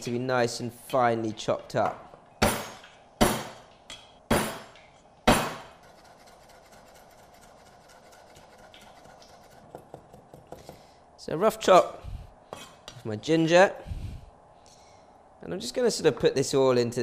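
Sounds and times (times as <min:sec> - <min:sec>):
cleaver chopping on wooden block: 0:05.3 - 0:05.7.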